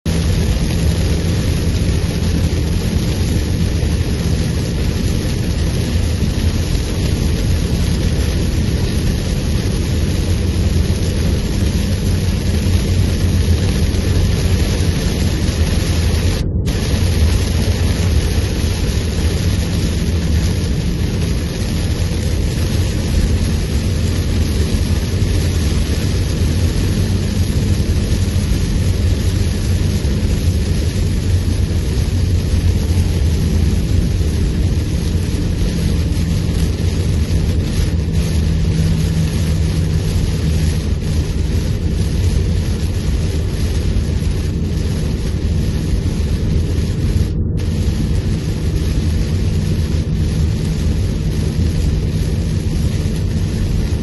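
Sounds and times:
heavy rain drumming on a car: 0.0 - 54.0
tyre and road noise: 0.0 - 54.0.

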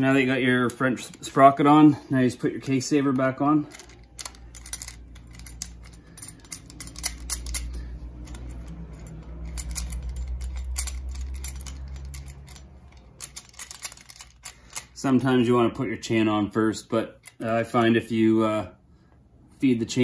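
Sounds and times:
low steady hum: 0.0 - 20.0
metal parts clicking and rattling: 2.6 - 15.2, 17.0 - 18.1.

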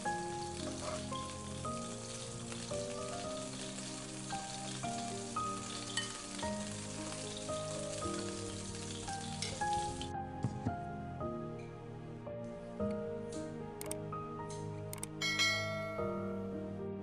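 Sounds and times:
beef sizzling in frying pan: 0.0 - 10.2
gentle melody of held notes: 0.0 - 10.2, 10.9 - 17.0.

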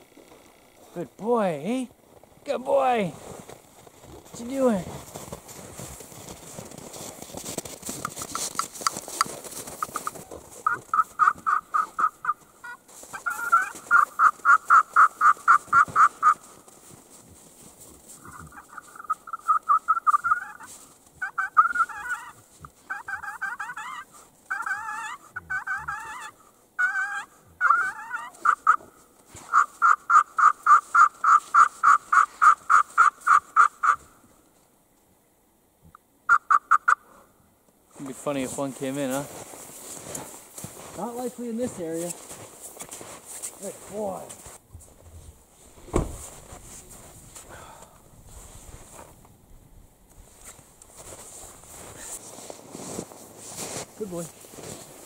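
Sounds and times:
turkey call yelps: 9.8 - 16.5, 18.2 - 34.2, 36.3 - 37.2.

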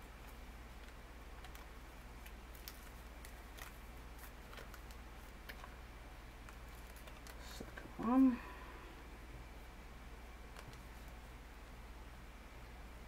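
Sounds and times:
low steady hum: 0.0 - 13.0
paper crinkling while folded: 0.2 - 5.8, 6.4 - 7.8.

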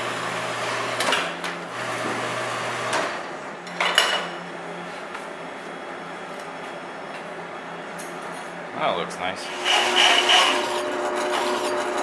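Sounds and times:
metal-cutting bandsaw running: 9.4 - 12.0.

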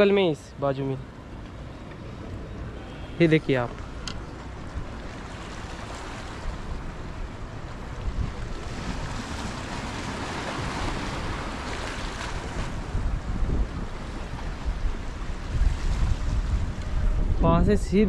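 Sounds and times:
wind buffeting microphone: 1.0 - 18.0
sea surf washing in: 4.7 - 17.5.

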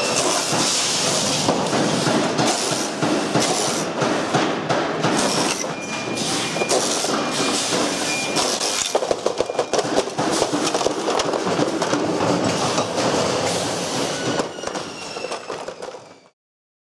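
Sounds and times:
plastic pieces clattering: 8.4 - 12.0.

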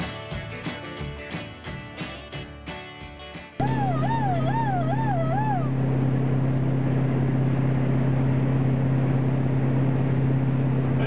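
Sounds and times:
vehicle engine droning: 3.6 - 11.0.

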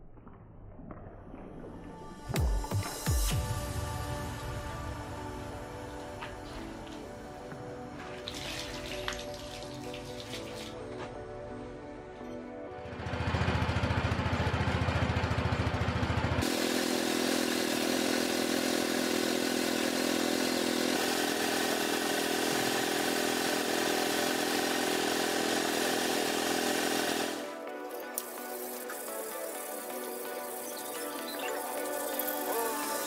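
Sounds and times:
motor pulsing: 16.4 - 33.0
spray gun hissing air: 16.4 - 33.0.

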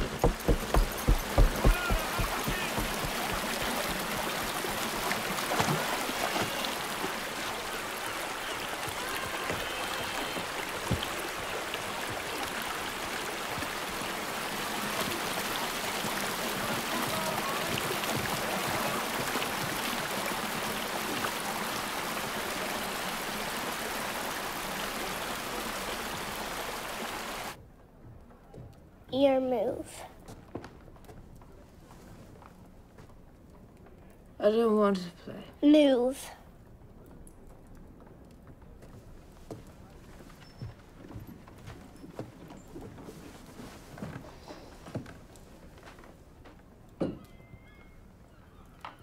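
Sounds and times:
river water rushing: 0.0 - 27.6.

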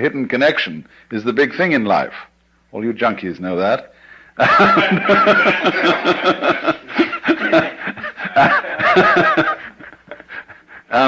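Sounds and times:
audience laughing: 4.4 - 11.0.

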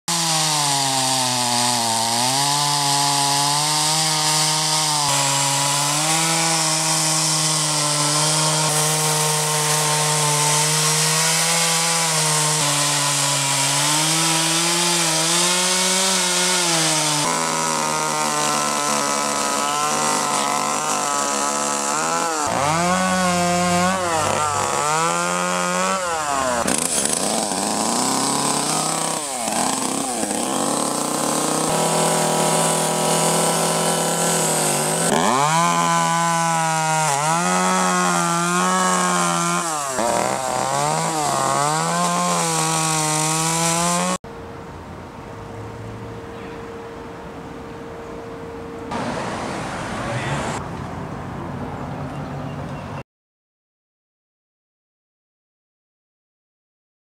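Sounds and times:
chainsaw cutting wood: 0.1 - 44.2
chainsaw revving: 0.1 - 44.2.

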